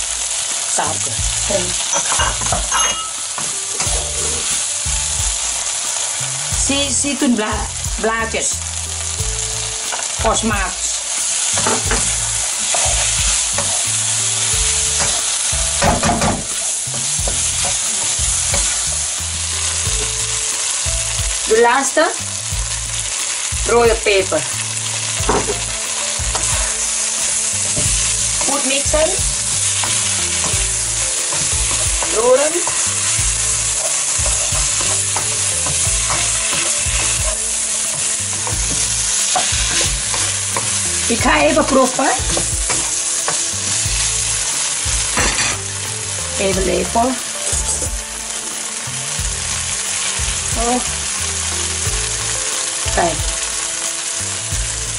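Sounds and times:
food sizzling in a wok: 0:00.0 - 0:54.9
spatula scraping pan: 0:24.1 - 0:45.8.

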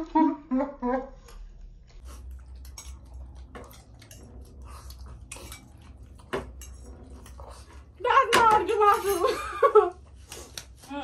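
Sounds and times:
cutlery clinking on steel bowls: 0:02.4 - 0:09.9.

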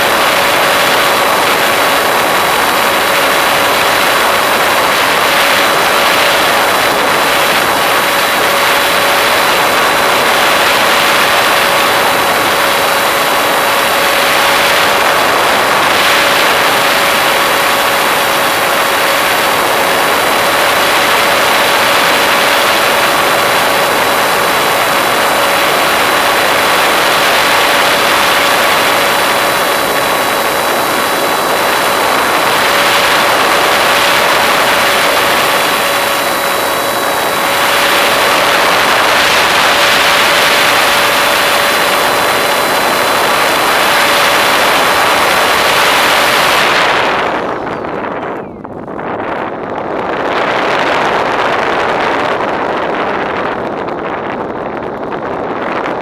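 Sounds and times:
model airplane motor whine: 0:00.0 - 0:56.0
rushing air: 0:00.0 - 0:56.0.

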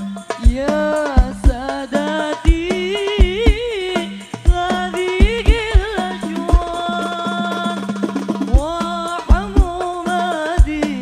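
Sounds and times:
male singer high voice: 0:00.0 - 0:11.0
deep drum thumps: 0:02.5 - 0:06.8, 0:08.4 - 0:09.8.

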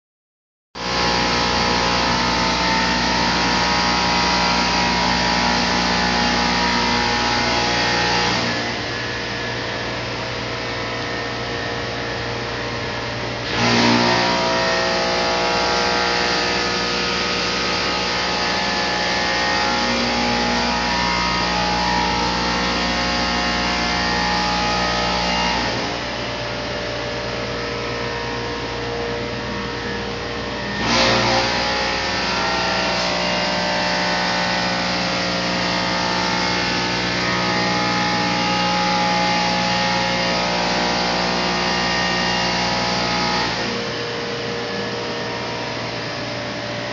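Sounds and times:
equipment fans whirring: 0:00.9 - 0:46.9.

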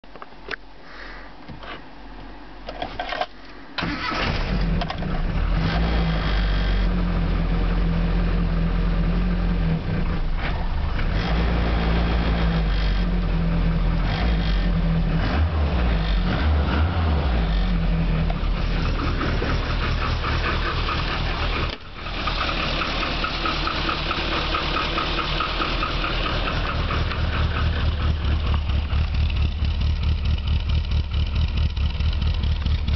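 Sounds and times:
car engine starting and running: 0:02.3 - 0:32.9
exhaust pulses: 0:09.1 - 0:32.9.

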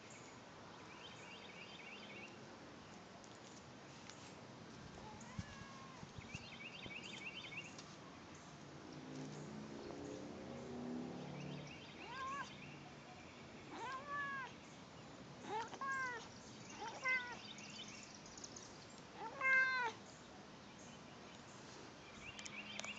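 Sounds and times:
cat meowing: 0:05.0 - 0:06.1, 0:12.0 - 0:12.5, 0:13.7 - 0:14.5, 0:15.4 - 0:17.4, 0:19.2 - 0:20.0.

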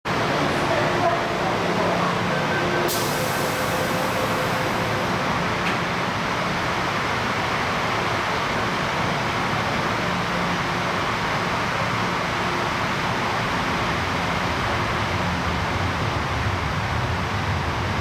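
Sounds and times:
train doors sliding shut: 0:02.8 - 0:05.9.

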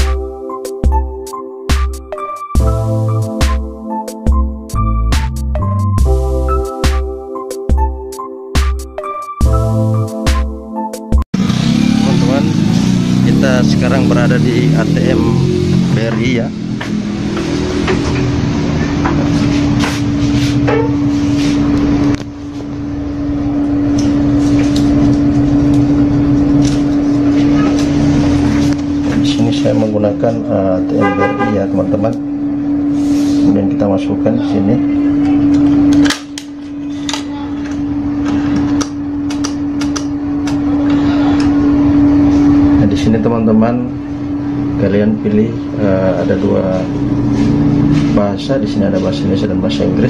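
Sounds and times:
machine hum: 0:11.4 - 0:50.0.

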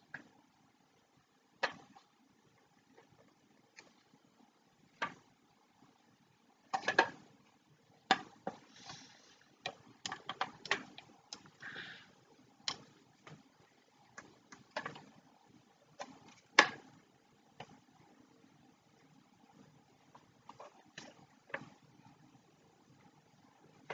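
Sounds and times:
plastic parts clicking and knocking: 0:01.6 - 0:02.2, 0:04.9 - 0:05.3, 0:06.6 - 0:07.3, 0:08.0 - 0:08.7, 0:09.6 - 0:11.6, 0:14.1 - 0:17.9, 0:20.0 - 0:21.9.

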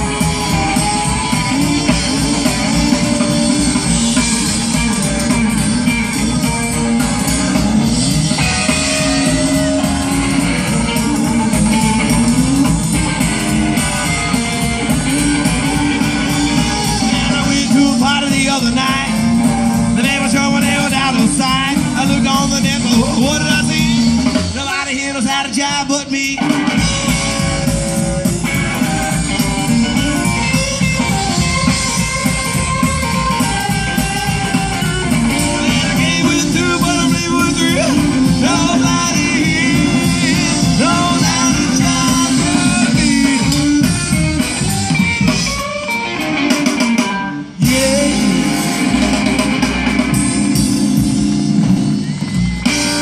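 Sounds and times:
rock and roll band playing: 0:00.0 - 0:53.0
person singing: 0:06.0 - 0:26.8, 0:35.2 - 0:44.0, 0:47.6 - 0:49.2.

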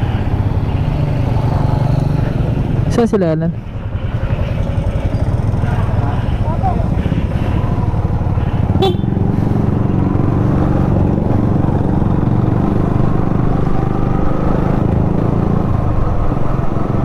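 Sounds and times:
motorcycle engine rumbling: 0:00.0 - 0:17.0.

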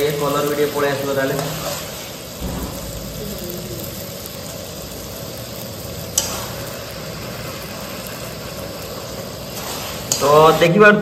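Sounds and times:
onions sizzling in a pan: 0:00.0 - 0:11.0
steady low rumble: 0:02.4 - 0:04.6.

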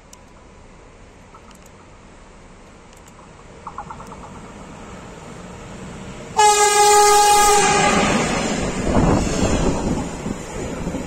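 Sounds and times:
approaching train rumble: 0:03.2 - 0:11.0
locomotive horn blast: 0:06.4 - 0:08.6.

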